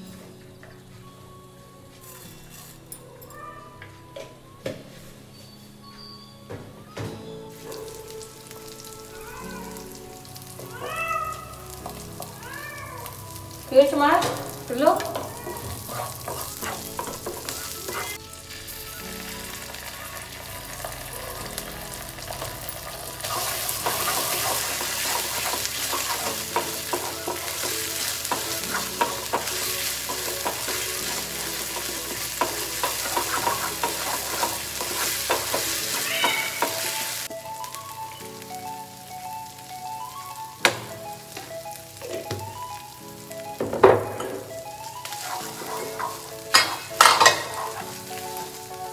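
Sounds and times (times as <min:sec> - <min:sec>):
garlic sizzling in hot oil: 0:07.2 - 0:48.9
wooden spatula scraping pan: 0:14.4 - 0:18.2, 0:22.5 - 0:37.1, 0:45.0 - 0:48.3.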